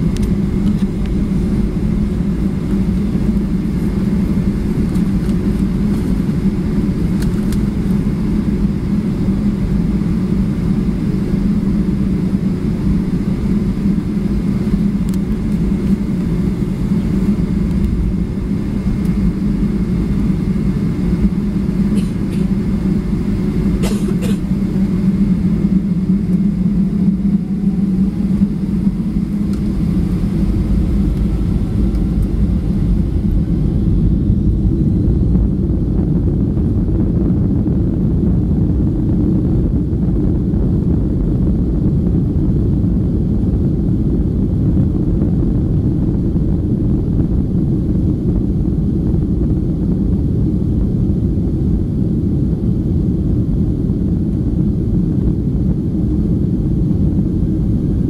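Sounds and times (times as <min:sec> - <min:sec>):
faint rising whine: 0:00.0 - 0:23.8, 0:24.5 - 0:58.0
jet engines rumbling: 0:00.0 - 0:58.0
wheels rumbling on runway: 0:00.0 - 0:58.0.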